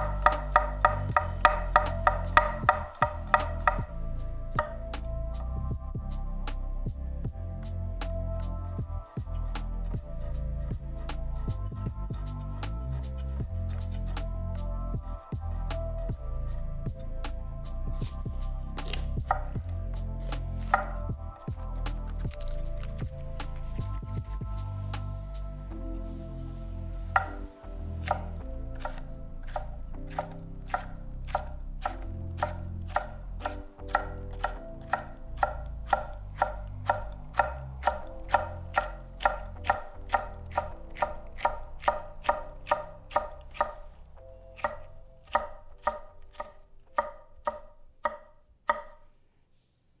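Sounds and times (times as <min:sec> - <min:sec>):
knife knocking on wooden board: 0:00.0 - 0:03.9, 0:18.9 - 0:19.5, 0:27.2 - 0:27.4
quiet background music: 0:00.0 - 0:50.0
knife slicing bell pepper: 0:18.8 - 0:19.5, 0:20.2 - 0:21.0, 0:21.8 - 0:23.7, 0:28.0 - 0:43.9, 0:44.6 - 0:49.0.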